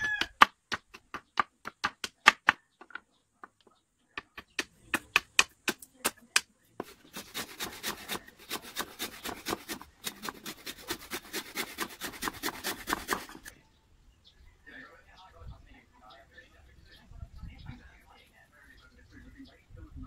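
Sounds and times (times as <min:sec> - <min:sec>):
blade striking wood: 0:00.0 - 0:03.6, 0:04.2 - 0:13.5
hand saw cutting wood: 0:06.8 - 0:13.5.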